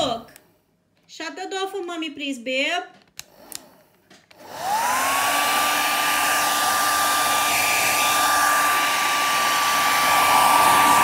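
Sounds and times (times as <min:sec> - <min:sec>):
hair dryer motor whine: 0:03.2 - 0:11.0
rush of blown air: 0:04.8 - 0:11.0.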